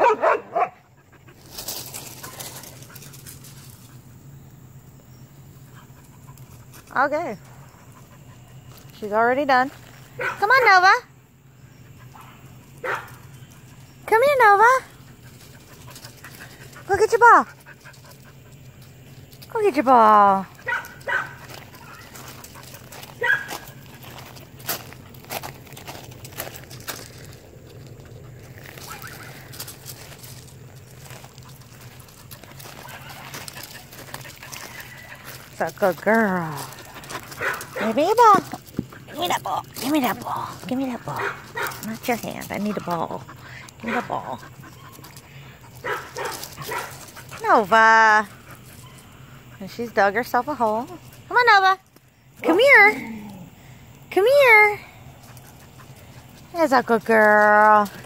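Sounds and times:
footsteps on gravel: 0:00.2 - 0:04.0, 0:05.8 - 0:10.6, 0:15.0 - 0:49.6.

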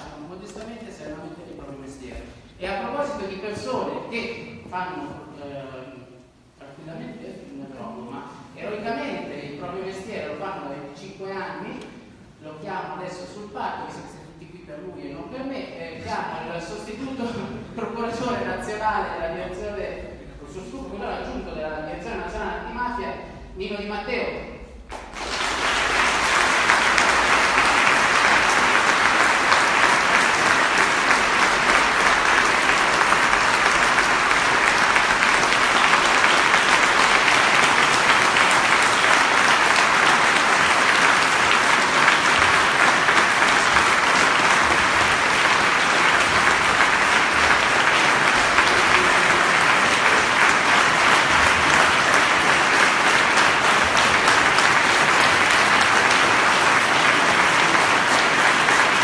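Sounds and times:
audience applauding: 0:24.9 - 0:59.0.

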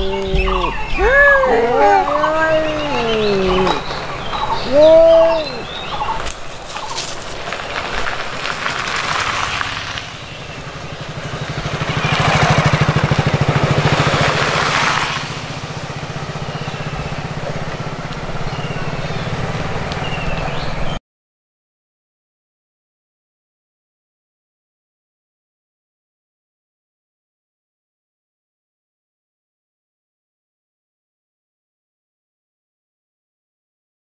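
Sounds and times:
cat yowling: 0:00.0 - 0:03.9, 0:04.6 - 0:05.8
engine running: 0:00.0 - 0:21.0.

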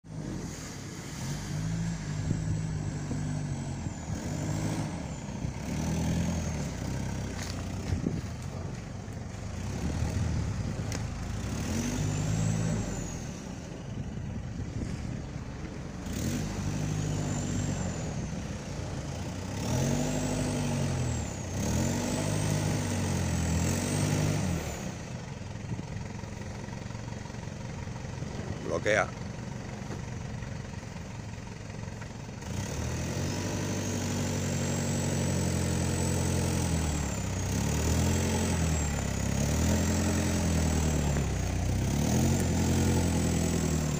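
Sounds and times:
engine revving hard: 0:00.0 - 0:07.5, 0:11.4 - 0:13.5, 0:16.0 - 0:18.3, 0:19.4 - 0:25.0, 0:32.4 - 0:43.9.

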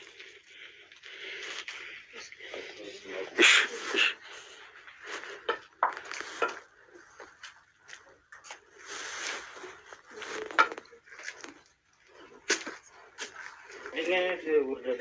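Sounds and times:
rustling noise: 0:06.0 - 0:06.5, 0:08.5 - 0:10.9.

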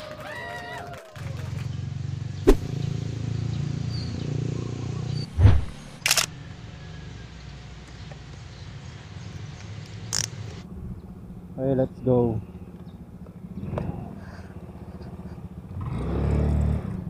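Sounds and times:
heavy thud: 0:02.5 - 0:02.7
sharp click: 0:05.4 - 0:06.3.

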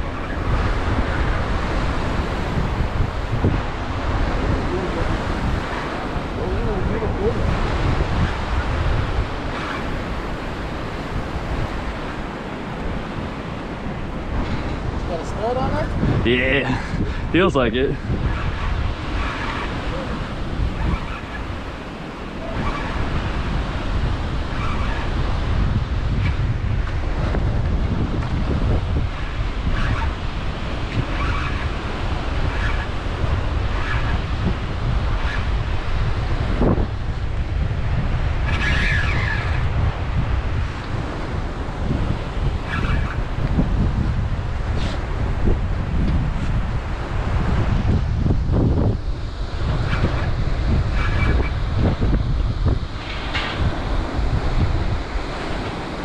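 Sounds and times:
water rushing: 0:00.0 - 0:56.0
wind buffeting microphone: 0:00.0 - 0:56.0.

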